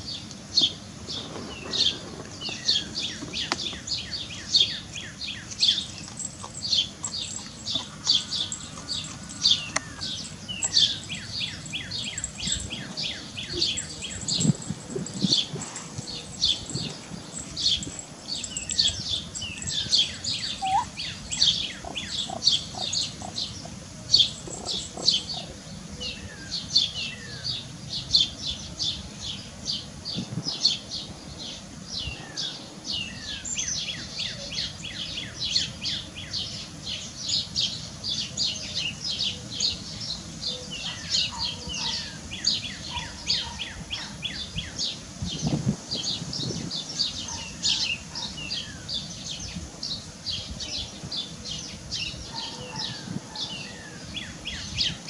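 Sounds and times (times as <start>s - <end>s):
birds chirping: 0.0s - 55.0s.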